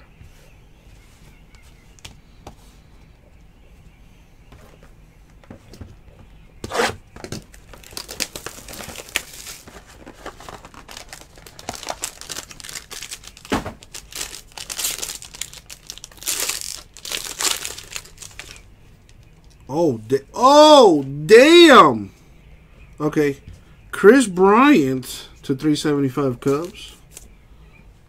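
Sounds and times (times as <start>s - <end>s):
foil wrapper crinkling and tearing: 7.5s - 19.6s.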